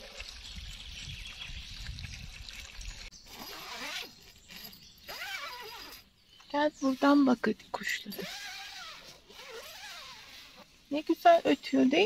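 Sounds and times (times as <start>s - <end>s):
wind rumbling on microphone: 0.0s - 3.1s
birds chirping: 0.0s - 12.0s.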